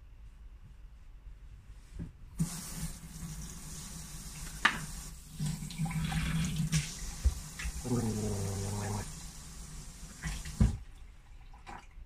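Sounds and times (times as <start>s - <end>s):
water running into sink: 2.4s - 12.0s.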